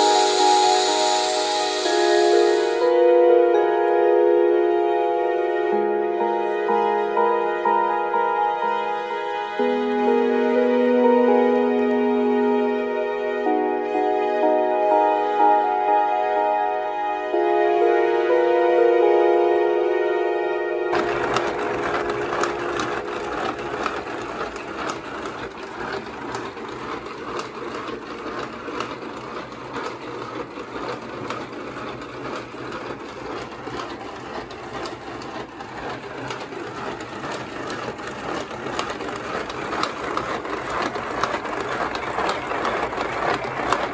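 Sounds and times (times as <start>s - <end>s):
wooden model engine clattering: 20.9s - 43.9s.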